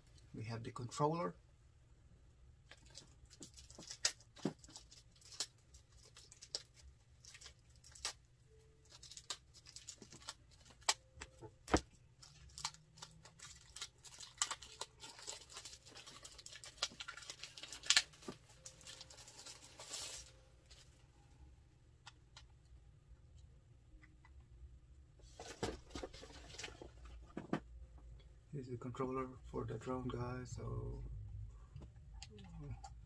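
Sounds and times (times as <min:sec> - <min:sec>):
plastic wrapping crinkling: 0:02.6 - 0:21.0.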